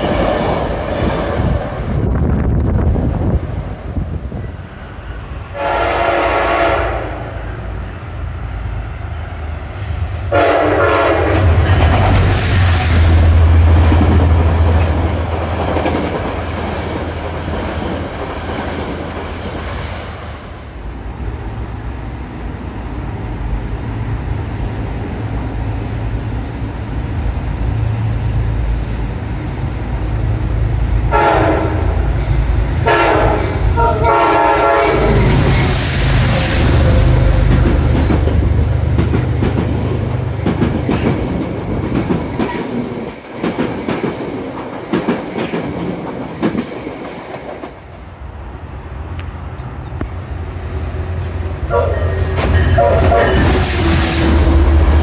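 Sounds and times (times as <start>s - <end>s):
train rumbling on rails: 0.0s - 55.0s
locomotive short horn blasts: 5.5s - 7.4s, 10.3s - 11.5s, 31.1s - 32.1s, 32.8s - 35.2s, 51.7s - 54.0s
train horn blasts: 5.5s - 7.5s, 10.3s - 11.7s, 31.1s - 32.2s, 32.8s - 35.4s, 51.6s - 54.7s.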